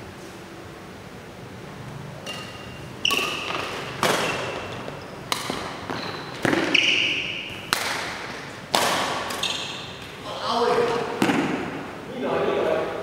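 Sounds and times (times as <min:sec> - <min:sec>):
shoes squeaking on court: 0:02.2 - 0:10.2
shuttlecock hit by racquets: 0:02.2 - 0:10.2, 0:11.0 - 0:11.8.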